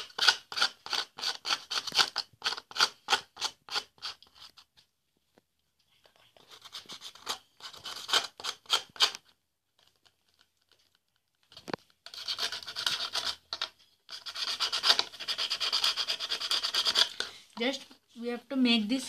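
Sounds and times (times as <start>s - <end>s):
sandpaper rubbing: 14.1s - 17.1s.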